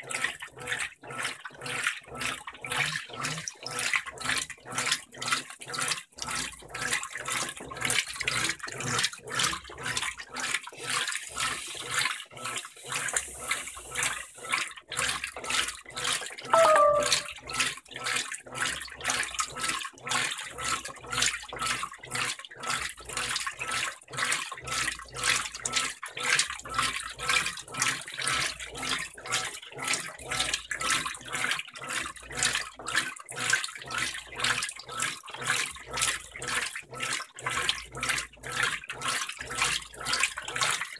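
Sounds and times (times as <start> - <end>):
washing machine water sloshing: 0.0 - 16.4, 18.2 - 40.9
short tone: 16.6 - 17.4.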